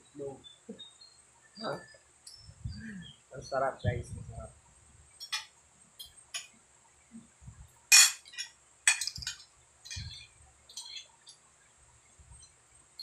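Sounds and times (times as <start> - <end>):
metal fork clinking on glass plate: 7.9 - 11.4.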